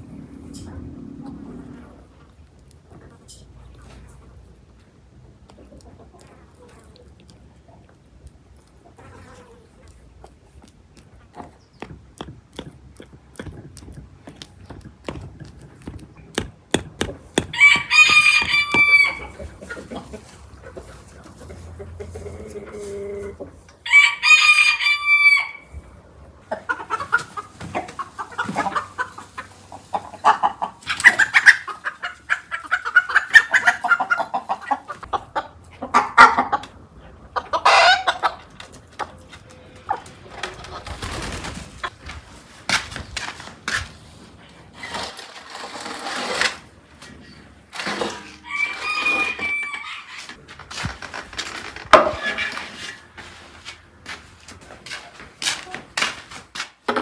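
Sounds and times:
chickens clucking and squawking: 0.0 - 42.0, 47.1 - 50.5
rooster crowing: 17.4 - 19.4, 23.8 - 25.7, 48.3 - 50.3.

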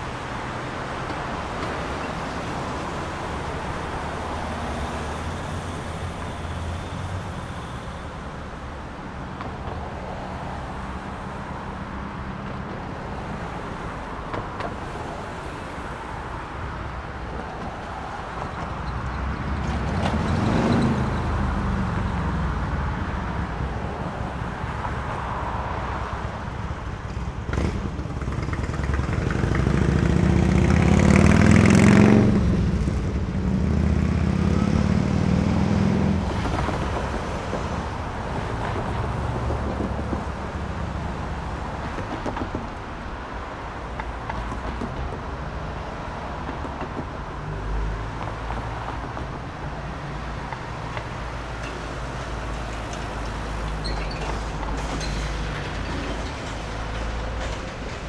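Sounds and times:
distant traffic hum: 0.0 - 58.0
car passing: 27.5 - 41.9.

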